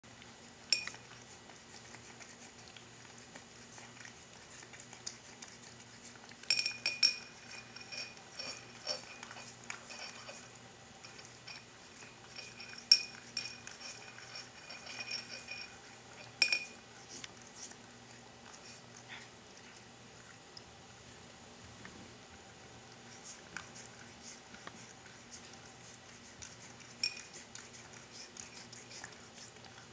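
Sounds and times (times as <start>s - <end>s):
cat lapping milk: 0.1s - 6.5s, 22.4s - 29.9s
ceramic bowl clinking: 0.7s - 1.0s, 6.5s - 10.4s, 11.1s - 16.8s, 27.0s - 27.4s.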